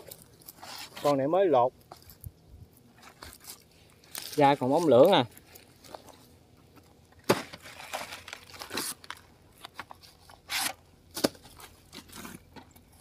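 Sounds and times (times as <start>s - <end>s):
plastic sack crinkling and rustling: 2.9s - 6.2s, 7.2s - 10.3s
sharp plastic crackles: 7.2s - 12.9s.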